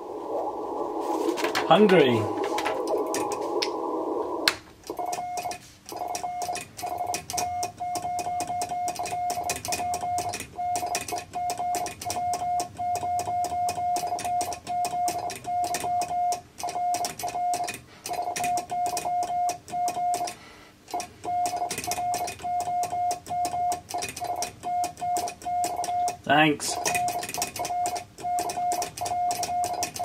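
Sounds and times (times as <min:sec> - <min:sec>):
receiver band hiss: 0:00.0 - 0:06.2
morse code tone: 0:04.9 - 0:30.0.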